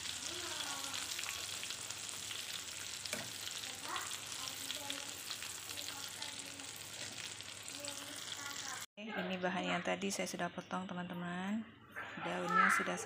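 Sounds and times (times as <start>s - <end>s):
chicken sizzling in frying oil: 0.0s - 8.9s.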